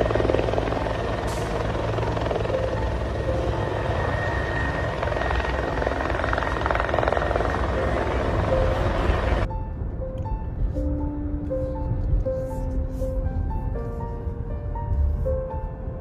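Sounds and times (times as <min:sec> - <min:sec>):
helicopter rotor chop: 0:00.0 - 0:09.4.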